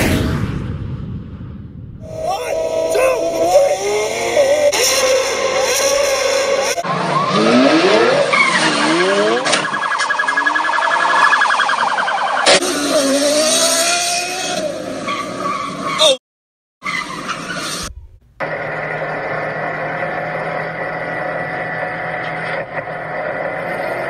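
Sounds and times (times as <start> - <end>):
high pulsing squeal: 2.0 - 6.8
engines revving hard: 2.1 - 9.7, 12.4 - 15.4, 18.4 - 24.0.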